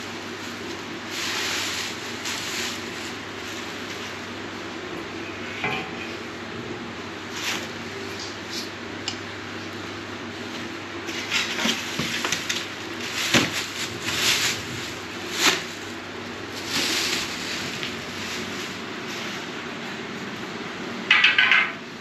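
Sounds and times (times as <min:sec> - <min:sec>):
plastic sheet rustling and crinkling: 0:00.0 - 0:04.4, 0:07.2 - 0:08.7, 0:10.4 - 0:19.7.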